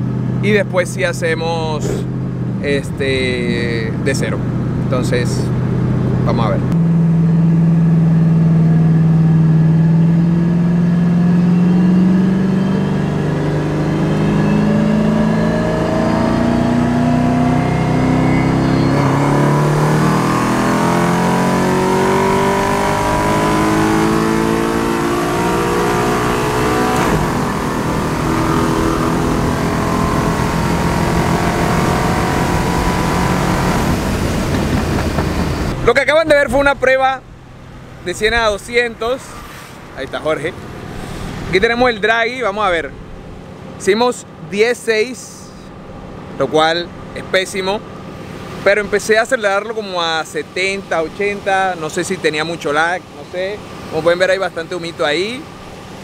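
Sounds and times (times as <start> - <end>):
car engine accelerating: 0.0 - 42.1.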